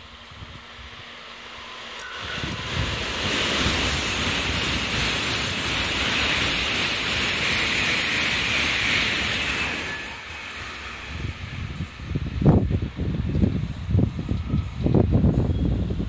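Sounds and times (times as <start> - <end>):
high-speed train passing: 0.0 - 16.0
wind buffeting microphone: 2.2 - 6.4, 10.9 - 16.0.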